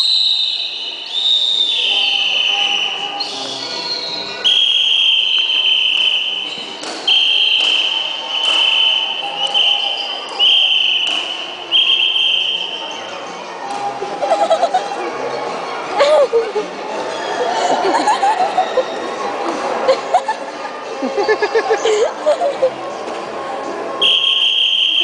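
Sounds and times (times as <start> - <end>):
shrill whistle blasts: 0.0 - 13.0, 24.0 - 25.0.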